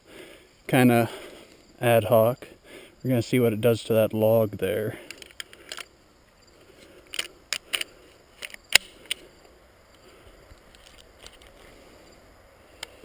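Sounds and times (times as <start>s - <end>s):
faint outdoor background: 0.0s - 13.0s
shotgun handling clicks and knocks: 5.0s - 5.9s, 6.8s - 9.3s, 10.4s - 11.7s.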